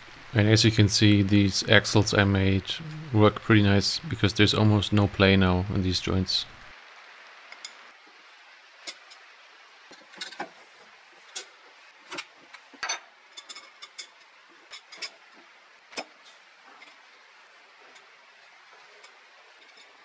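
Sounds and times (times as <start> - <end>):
faint steady hiss: 0.0 - 20.0
metal parts clicking and clinking: 9.9 - 10.6, 12.1 - 15.3.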